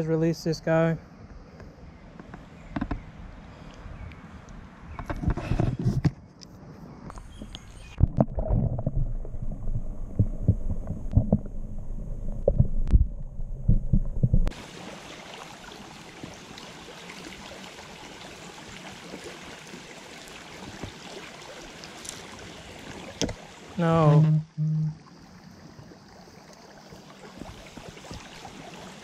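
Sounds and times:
muffled underwater thumps and sloshing: 0:08.0 - 0:14.6, 0:26.8 - 0:28.7
shallow creek rushing: 0:14.5 - 0:24.3, 0:25.0 - 0:29.0.

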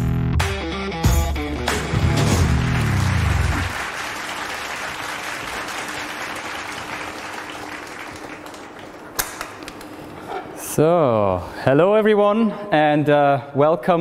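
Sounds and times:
music: 0:00.0 - 0:03.8
applause: 0:01.8 - 0:09.9.

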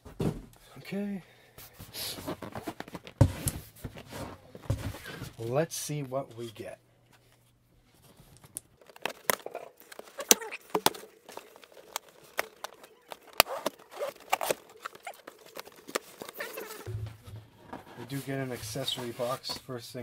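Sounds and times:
cardboard scraping: 0:02.0 - 0:05.4, 0:08.8 - 0:19.6.

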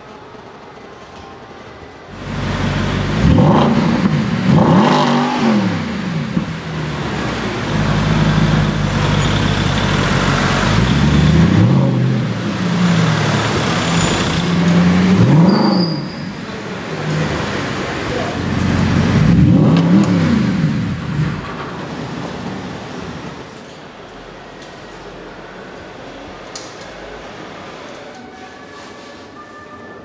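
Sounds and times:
car engine revving: 0:02.2 - 0:23.5.

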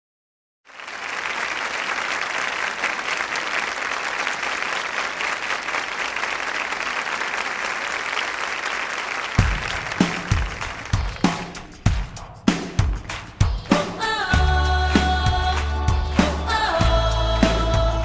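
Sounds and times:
audience applauding: 0:00.7 - 0:12.0, 0:14.8 - 0:17.7
bass drum beats: 0:09.4 - 0:18.0.

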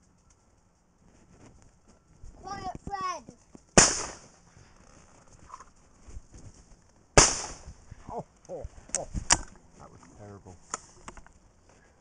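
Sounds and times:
shotgun shot: 0:03.8 - 0:04.3, 0:07.2 - 0:07.8.

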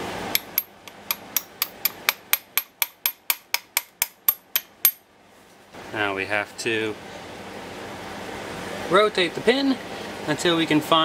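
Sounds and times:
hammer tapping metal pin: 0:00.4 - 0:05.0.

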